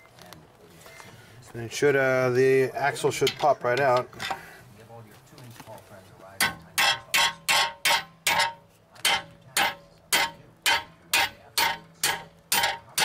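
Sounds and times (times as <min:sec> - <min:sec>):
hammer striking steel: 0:06.4 - 0:13.0.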